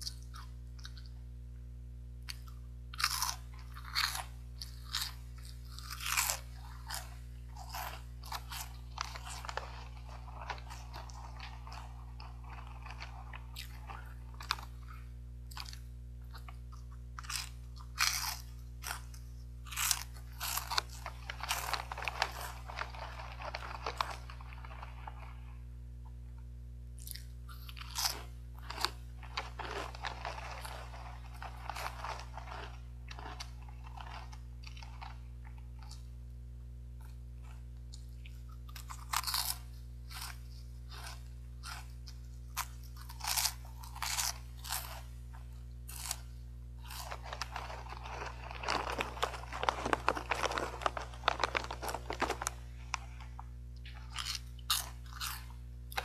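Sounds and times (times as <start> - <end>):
crunchy snack chewing: 0.0 - 1.2, 2.2 - 25.8, 27.0 - 36.3, 37.0 - 56.0
steady low hum: 0.0 - 56.0.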